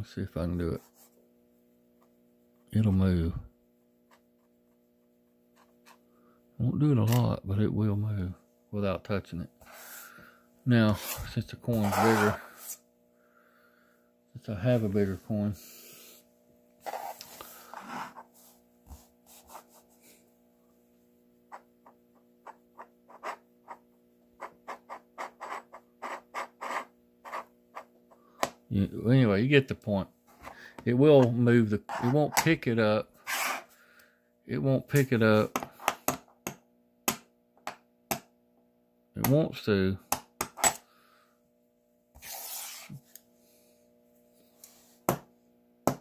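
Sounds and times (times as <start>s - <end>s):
faint steady hum: 0.0s - 46.0s
sliding scrape: 10.9s - 12.8s, 16.8s - 18.6s, 33.2s - 33.7s, 42.2s - 43.0s.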